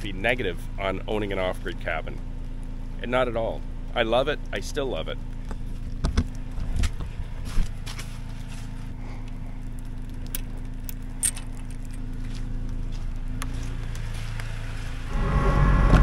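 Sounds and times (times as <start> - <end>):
engine idling: 0.0 - 16.0
raindrops ticking: 9.2 - 11.2.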